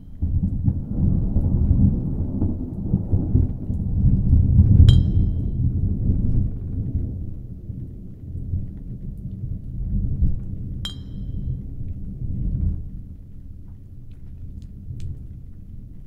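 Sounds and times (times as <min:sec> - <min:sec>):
low rolling rumble: 0:00.0 - 0:16.0
sharp ringing clink: 0:04.9 - 0:05.5, 0:10.9 - 0:11.4.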